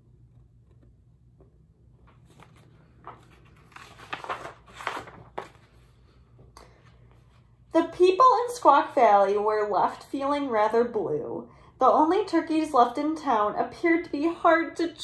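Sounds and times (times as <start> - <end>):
book pages rustling: 0.6 - 7.5.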